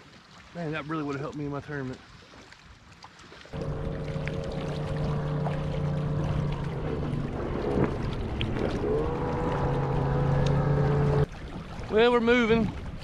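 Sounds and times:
water rushing along hull: 0:00.0 - 0:13.0
motor humming: 0:03.6 - 0:11.3.

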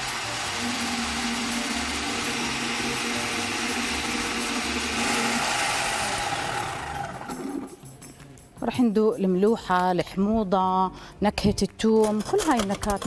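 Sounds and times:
electric blender running: 0:00.0 - 0:07.8.

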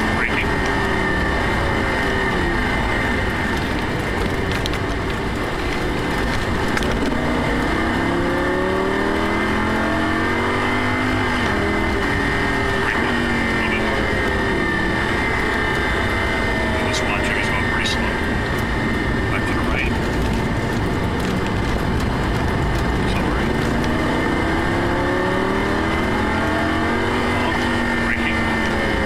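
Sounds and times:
car engine revving: 0:00.0 - 0:29.0
road and wind noise: 0:00.0 - 0:29.0.

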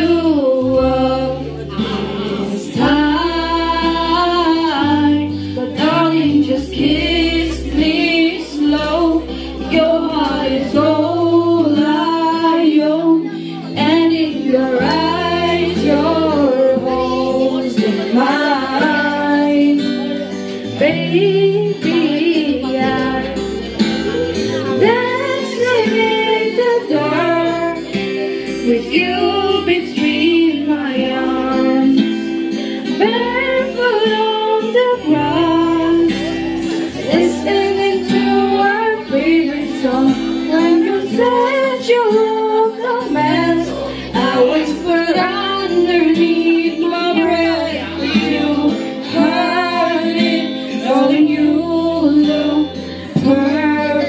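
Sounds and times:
strummed acoustic guitar: 0:00.0 - 0:54.0
two women singing: 0:00.0 - 0:54.0.

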